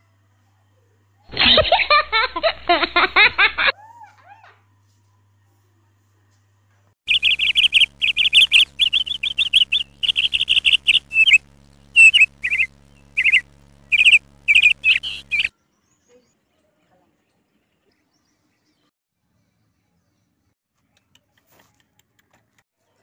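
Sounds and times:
parakeet calling: 7.1s - 15.5s.

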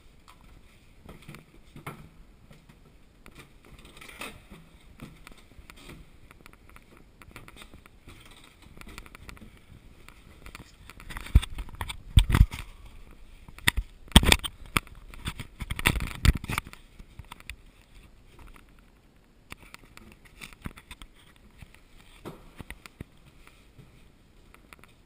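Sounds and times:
camera handling bumps: 10.1s - 12.7s, 13.5s - 17.5s.

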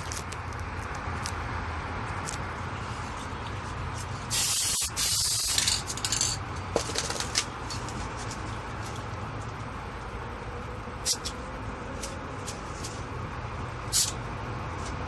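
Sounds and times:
spray paint can hissing: 4.3s - 6.3s, 13.9s - 14.2s.

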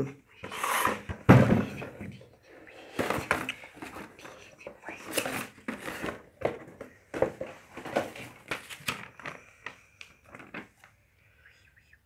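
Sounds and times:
paper rustling: 2.9s - 11.0s.

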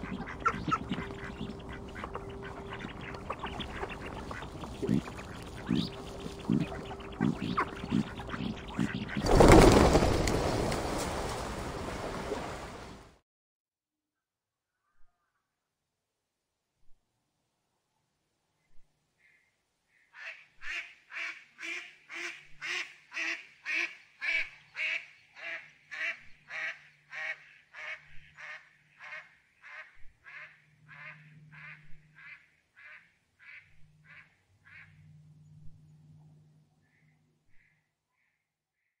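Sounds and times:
duck quacking: 0.0s - 9.3s, 20.2s - 35.2s.

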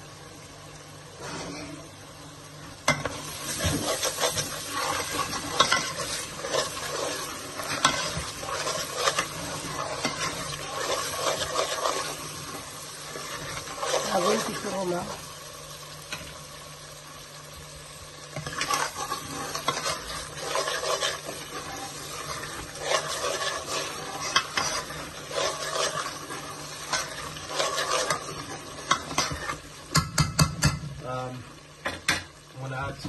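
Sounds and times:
spices sizzling in a pan: 0.0s - 33.0s
utensil stirring and scraping pan: 2.9s - 15.2s, 18.3s - 30.9s
utensil knocking on pan: 29.9s - 30.9s.

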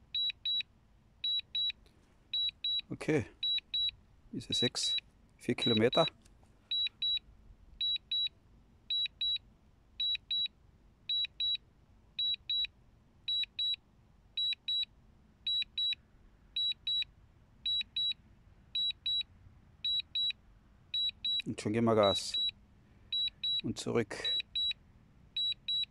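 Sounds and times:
controller alert double beeps: 2.4s - 3.9s, 5.6s - 6.1s, 21.0s - 22.5s, 23.2s - 23.7s.

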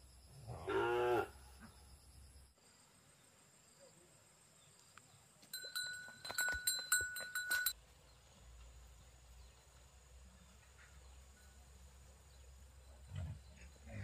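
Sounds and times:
small metal bell jangling: 5.5s - 7.8s.

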